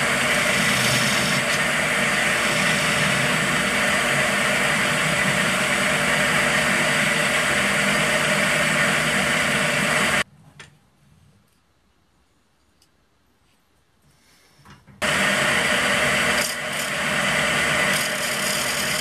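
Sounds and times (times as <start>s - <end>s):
turning tool scraping wood: 0.0s - 10.2s, 15.4s - 19.0s
wood lathe running: 0.0s - 10.2s, 15.0s - 19.0s.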